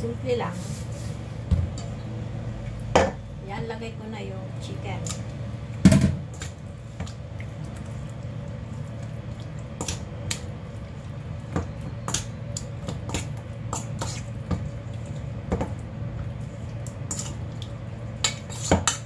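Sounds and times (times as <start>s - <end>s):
steady low hum: 0.0s - 19.0s
spoon scraping metal bowl: 18.2s - 19.0s.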